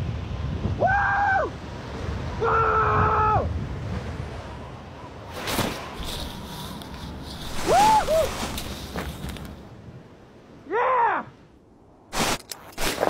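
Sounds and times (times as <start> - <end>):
wind rushing over microphone: 0.0 - 10.6
person yelling: 10.6 - 11.4
person shouting: 10.7 - 11.3.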